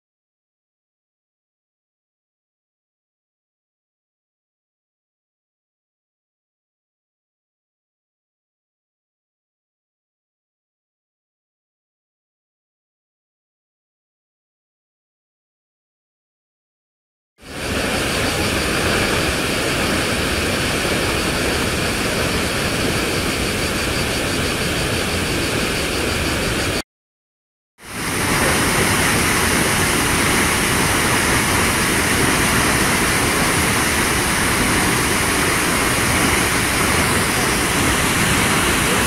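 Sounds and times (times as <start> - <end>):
rush of falling water: 17.4 - 26.8, 27.8 - 39.0.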